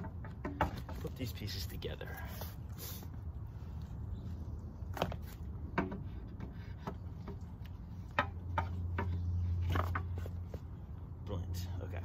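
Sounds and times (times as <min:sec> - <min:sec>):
wooden parts knocking together: 0:00.0 - 0:01.2.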